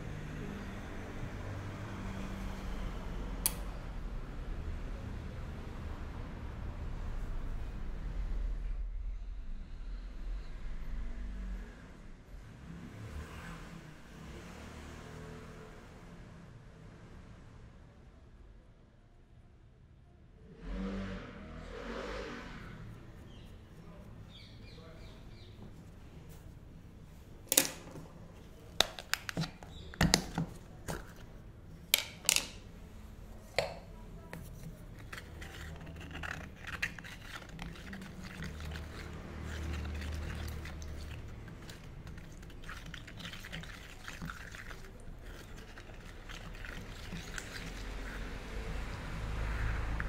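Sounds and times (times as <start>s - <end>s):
stick stirring wet clay: 27.5s - 32.7s, 33.4s - 50.0s.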